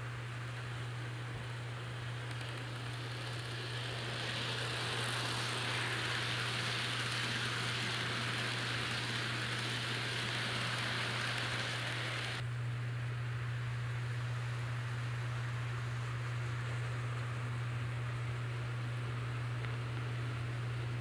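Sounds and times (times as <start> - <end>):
steady low hum: 0.0 - 21.0
model train wheels rattling on rails: 1.4 - 12.4.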